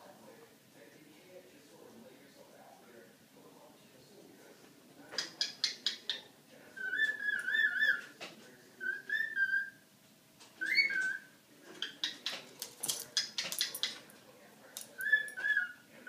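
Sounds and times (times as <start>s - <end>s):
cockatiel whistling a tune: 6.8s - 8.0s, 8.8s - 9.8s, 10.6s - 11.3s, 15.0s - 15.8s.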